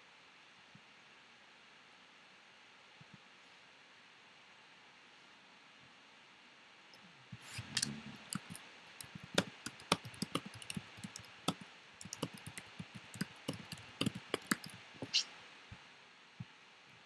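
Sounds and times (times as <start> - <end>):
keyboard typing clicks: 7.8 - 15.2.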